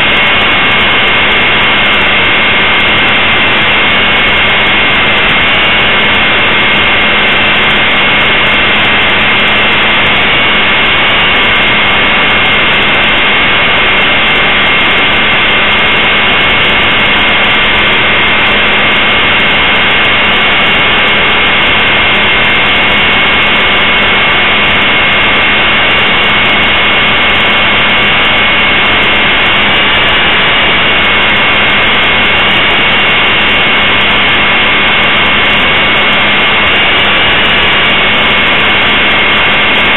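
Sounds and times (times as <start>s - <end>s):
electric motor high whine: 0.0s - 39.9s.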